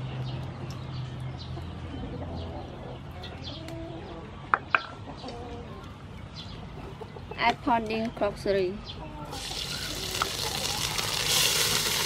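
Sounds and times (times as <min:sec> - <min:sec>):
small birds chirping: 0:00.0 - 0:12.0
hens clucking: 0:01.4 - 0:12.0.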